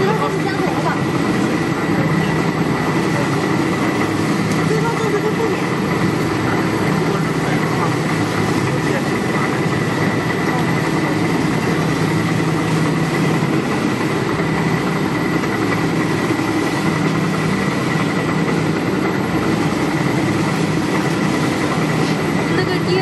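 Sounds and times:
stirrer motor humming and whining: 0:00.0 - 0:23.0.

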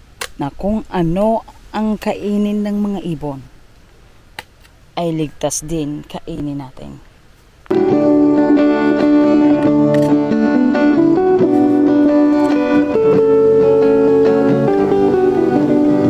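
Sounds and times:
plucked guitar music: 0:07.7 - 0:16.0.

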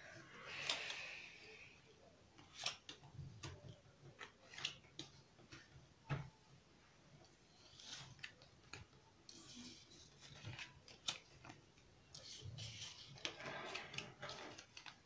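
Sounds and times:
cards rustling: 0:07.6 - 0:15.0.

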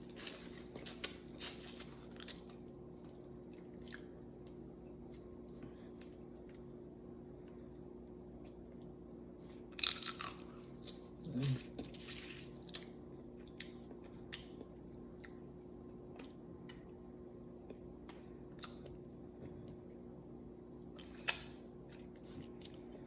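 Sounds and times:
wet chewing and lip smacks: 0:16.2 - 0:20.0.

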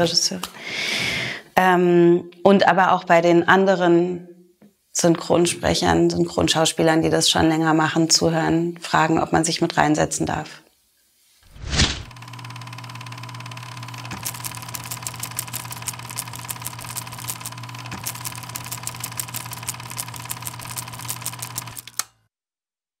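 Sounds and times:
steady machine hum: 0:12.0 - 0:22.0
rapid even clicking: 0:14.0 - 0:22.0.

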